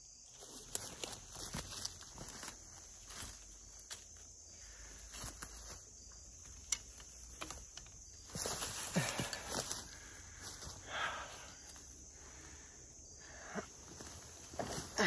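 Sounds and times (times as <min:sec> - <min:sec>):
high insect hum: 0:00.0 - 0:15.0
dry leaves rustling: 0:00.3 - 0:12.1.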